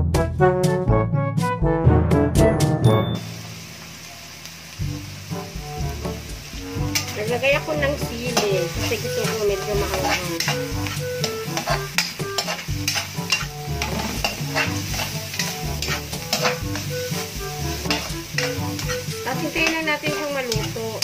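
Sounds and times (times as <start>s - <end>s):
meat sizzling: 3.1s - 21.0s
metal spatula scraping a wok: 6.5s - 21.0s.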